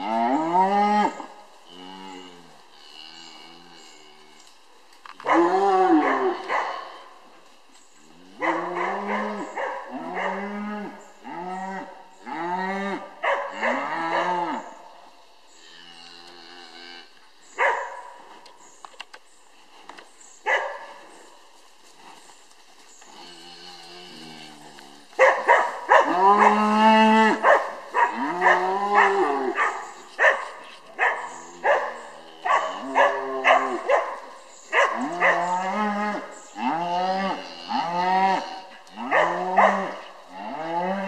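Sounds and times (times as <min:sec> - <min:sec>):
cattle mooing: 0:23.2 - 0:25.1, 0:25.9 - 0:29.8, 0:34.9 - 0:41.0.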